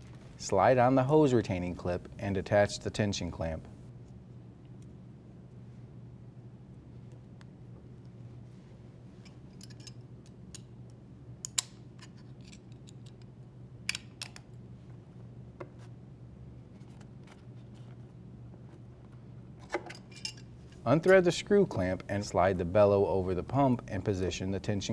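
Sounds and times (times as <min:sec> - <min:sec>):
faint low hum: 0:00.0 - 0:24.9
metallic clicks and snaps: 0:09.5 - 0:14.5.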